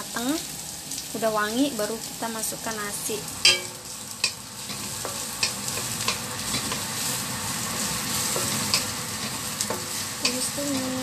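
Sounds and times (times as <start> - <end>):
food sizzling in oil: 0.0 - 11.0
wooden spatula scraping a wok: 4.6 - 11.0.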